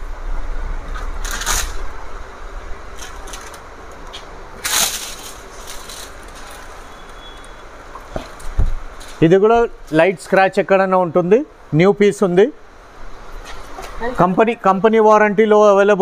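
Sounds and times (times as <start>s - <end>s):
low room hum: 0.0s - 16.0s
rustling scrapes of packing: 2.9s - 9.2s.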